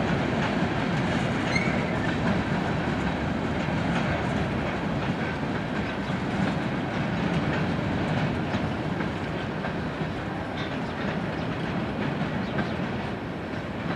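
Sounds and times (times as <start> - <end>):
freight train rumbling: 0.0 - 13.9
wheels clicking over rail joints: 0.0 - 13.9.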